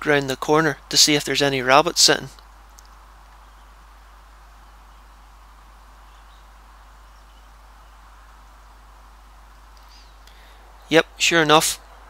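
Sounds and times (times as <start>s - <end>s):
rural outdoor background noise: 0.0s - 12.0s
faint bird chirps: 2.9s - 12.0s.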